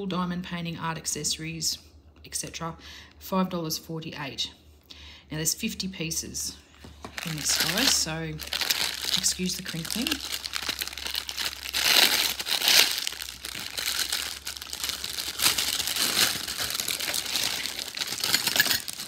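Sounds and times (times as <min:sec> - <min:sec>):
plastic bag crinkling: 0:07.0 - 0:19.0.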